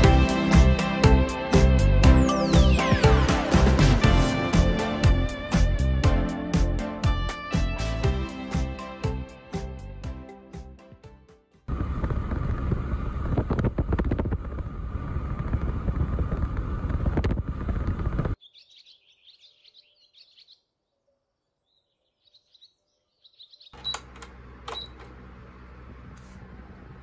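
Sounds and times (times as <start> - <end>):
fan humming: 11.7 - 18.3, 23.8 - 27.0
fan control panel beeps: 23.8 - 25.1.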